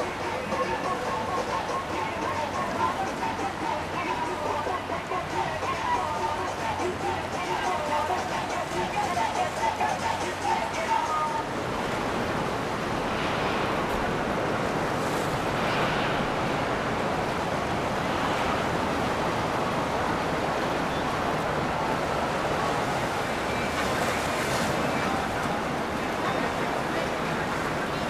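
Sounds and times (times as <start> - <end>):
water rushing: 0.0 - 28.0
wind rushing: 11.4 - 21.8.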